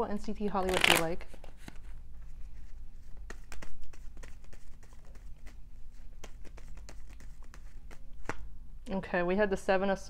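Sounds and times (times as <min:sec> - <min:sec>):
cards being shuffled: 0:00.6 - 0:08.5.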